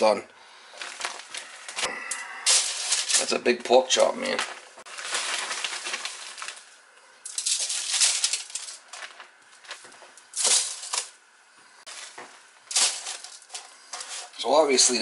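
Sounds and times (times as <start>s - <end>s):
aluminium foil crinkling: 0.7s - 11.2s, 11.9s - 15.0s
plastic bag crinkling: 0.7s - 11.2s, 11.9s - 15.0s.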